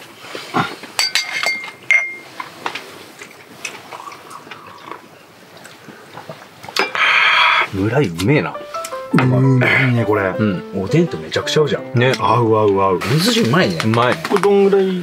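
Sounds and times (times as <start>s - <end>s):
cups and can clinking: 0.9s - 2.3s
quiet sipping: 3.2s - 7.7s.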